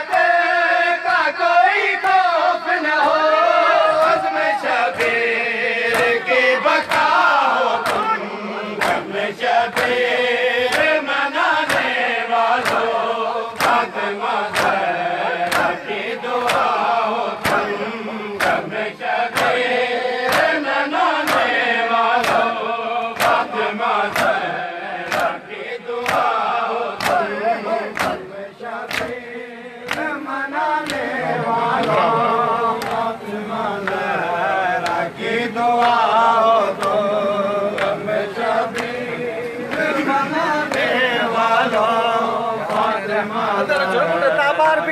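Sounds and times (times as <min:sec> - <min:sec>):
men chanting in unison: 0:00.0 - 0:44.9.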